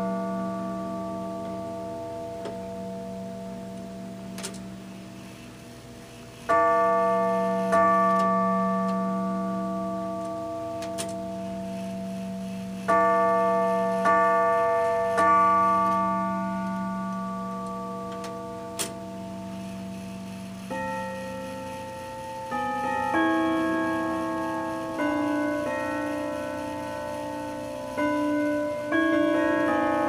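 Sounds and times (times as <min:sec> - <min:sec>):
clock chime rod striking: 0:00.0 - 0:05.6, 0:06.2 - 0:30.0
clock movement clicks: 0:03.8 - 0:04.7, 0:10.2 - 0:13.3, 0:13.9 - 0:30.0.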